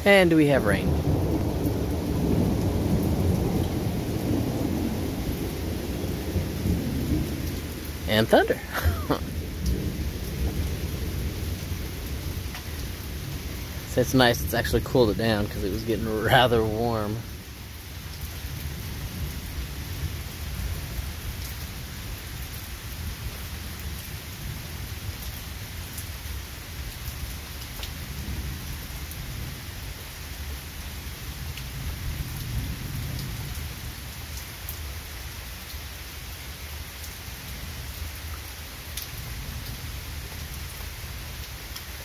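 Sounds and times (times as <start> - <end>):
distant thunder rumbling: 0.0 - 17.5
rain falling on grass and trees: 0.0 - 42.0
close raindrop ticks: 0.8 - 42.0.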